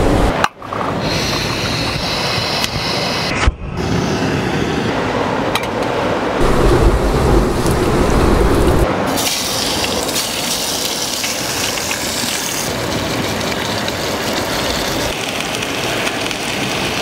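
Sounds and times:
low rumble: 6.2 - 9.1.

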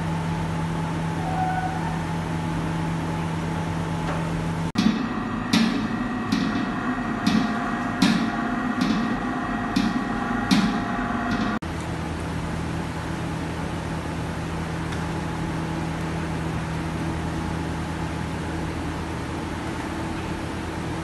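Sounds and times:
kitchen hum: 1.0 - 12.0
mixer knocking: 4.1 - 11.6.

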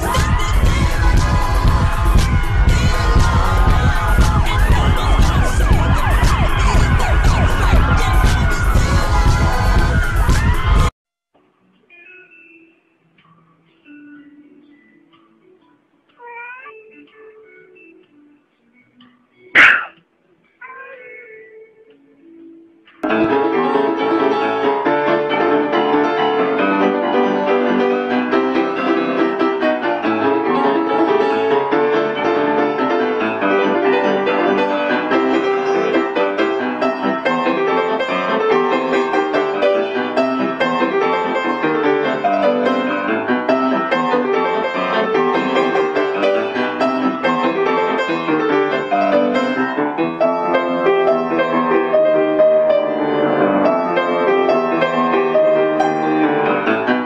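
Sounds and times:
piano music with quick notes: 0.0 - 10.9, 22.4 - 57.0.

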